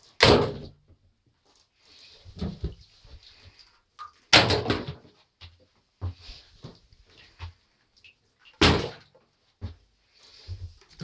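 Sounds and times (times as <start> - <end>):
knocks and thuds around tub: 2.3 - 2.9, 4.3 - 5.2, 8.6 - 9.8.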